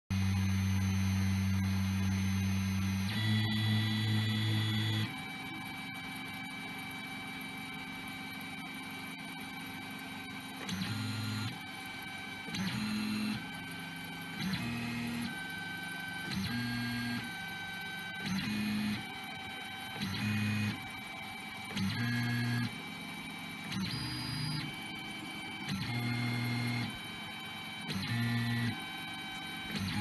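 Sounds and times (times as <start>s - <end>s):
stepper motors whining: 8.3s - 30.0s.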